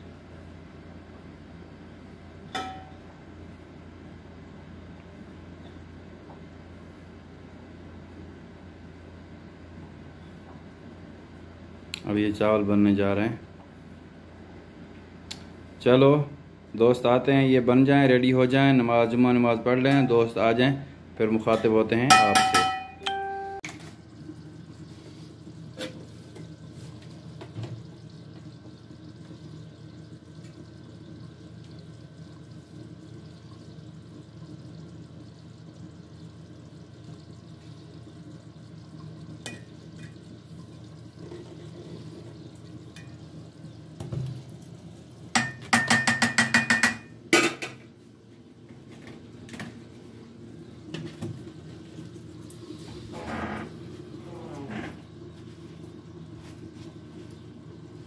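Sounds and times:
metal ladle knocking in pot: 2.6 - 3.0, 22.1 - 23.3.

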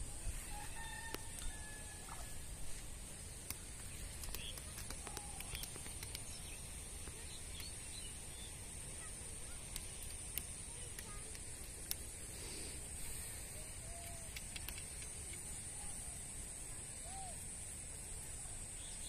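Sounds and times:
steady high hiss: 0.0 - 19.0
faint bird chirps: 13.0 - 19.0
light clicks: 13.9 - 15.5.

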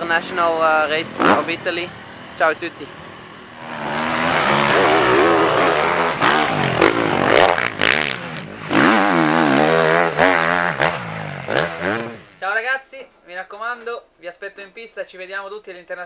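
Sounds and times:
motocross bike engines revving: 0.0 - 12.5.

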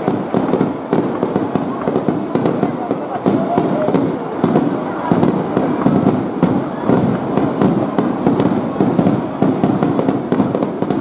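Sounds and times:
firework shells bursting: 0.0 - 11.0.

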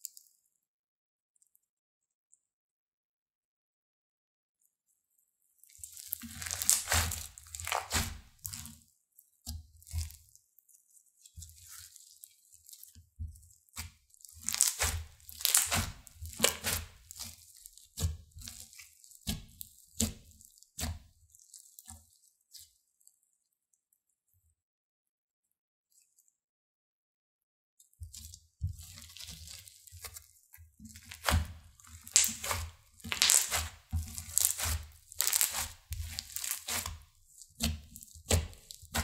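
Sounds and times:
slime crackling and squishing: 5.6 - 23.1, 28.1 - 39.0.

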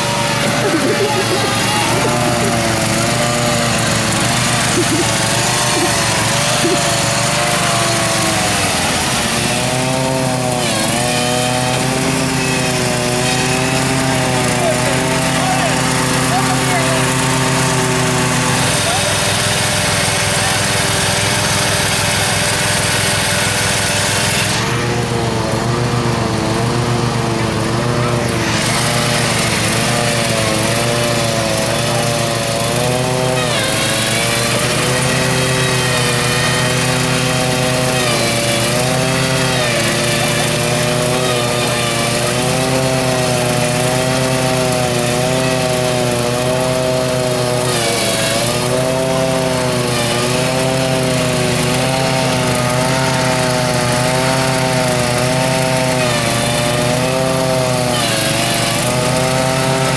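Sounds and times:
riding lawn tractor engine: 0.0 - 59.9.

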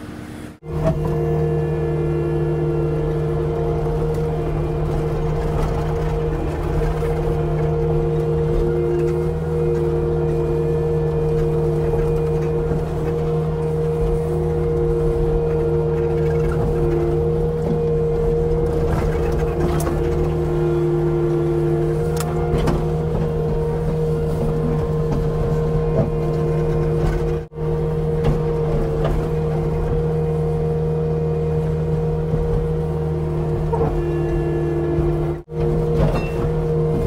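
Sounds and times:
diesel engine under load: 0.0 - 37.0
hydraulic pump whine: 0.0 - 37.0.

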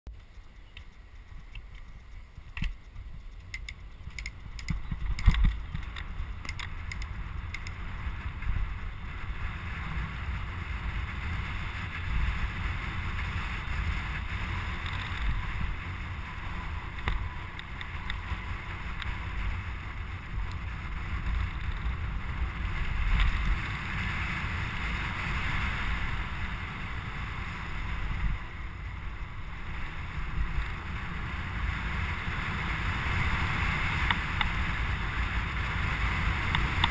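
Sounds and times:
clicks: 0.1 - 7.8
tyres rolling on asphalt: 0.1 - 36.9
wind buffeting microphone: 0.1 - 36.9.

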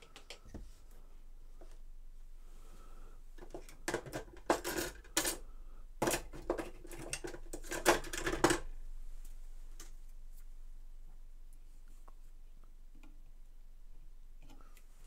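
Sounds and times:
clattering and rustling handling: 3.4 - 5.4, 6.0 - 10.5.

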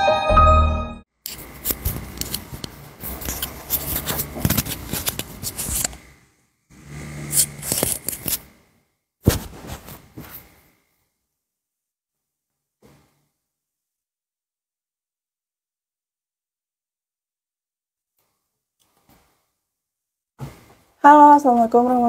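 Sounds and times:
clip-on microphone handling noise: 1.3 - 6.0.

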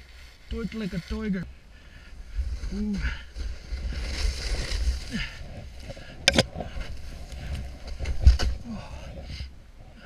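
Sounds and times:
wind rumbling on microphone: 0.0 - 10.0.

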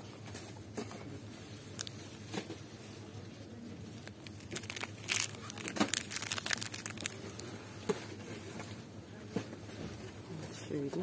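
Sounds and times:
plastic packaging crinkling: 1.3 - 8.4.

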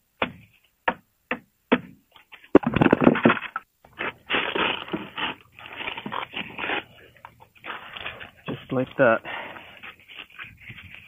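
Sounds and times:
wood crackling and scraping: 2.2 - 11.0.

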